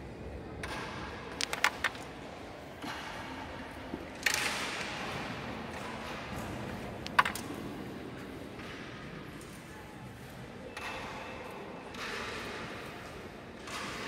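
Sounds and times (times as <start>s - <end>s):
pieces sliding across board: 1.4s - 2.0s, 7.0s - 7.4s
carrom striker clacking into coins: 7.0s - 7.5s.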